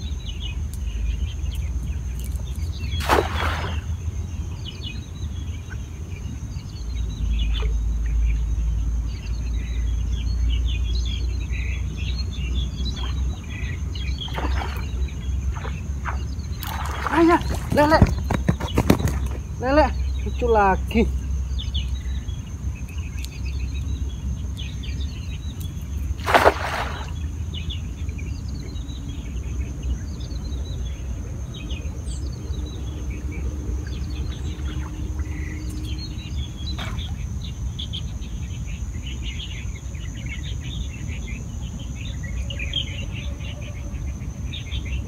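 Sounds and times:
birds chirping: 0.0 - 45.0
cast net splashing into water: 2.9 - 4.0, 14.2 - 18.0, 26.2 - 27.2
steady low rumble: 27.2 - 45.0.

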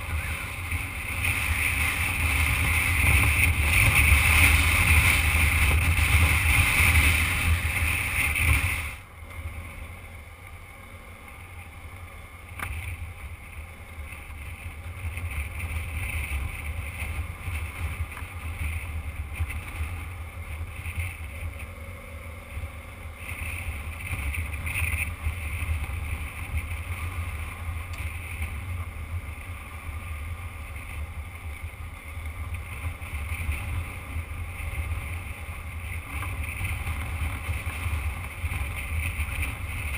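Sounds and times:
wind rush: 0.0 - 9.0
motorcycle engine: 0.0 - 39.9.

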